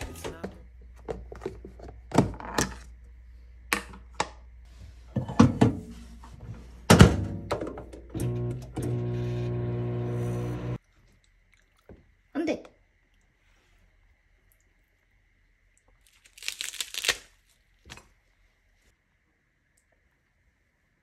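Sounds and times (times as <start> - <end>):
microwave door opening and shutting: 6.9 - 10.7
microwave oven humming: 8.0 - 10.8.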